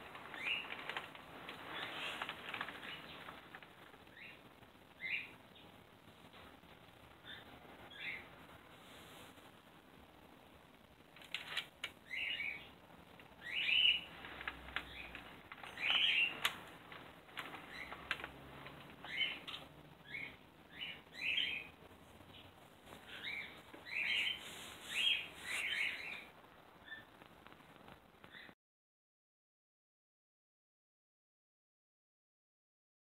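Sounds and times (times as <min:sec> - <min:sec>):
small bird chirping: 0:00.2 - 0:03.4, 0:04.0 - 0:05.8, 0:07.2 - 0:08.4, 0:11.9 - 0:18.3, 0:18.9 - 0:27.2, 0:28.2 - 0:28.6.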